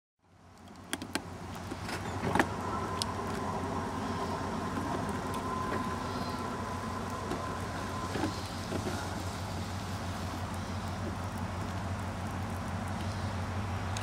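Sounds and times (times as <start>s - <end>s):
low steady rumble: 0.2s - 14.0s
crossing warning bell ringing: 2.0s - 8.3s.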